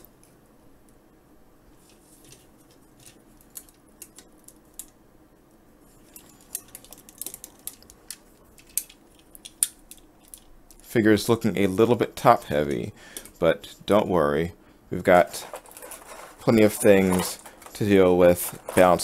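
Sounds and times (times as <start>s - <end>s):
plastic figure parts clicking: 6.5s - 10.8s.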